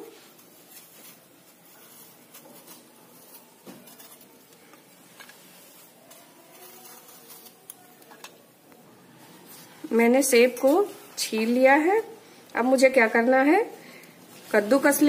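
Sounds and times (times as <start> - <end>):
knife peeling apples: 0.0 - 8.5.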